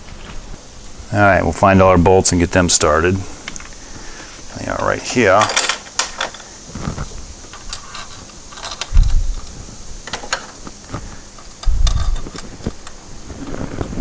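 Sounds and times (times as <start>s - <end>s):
steel bolts clinking: 4.8s - 6.5s, 7.5s - 10.6s, 11.4s - 13.0s.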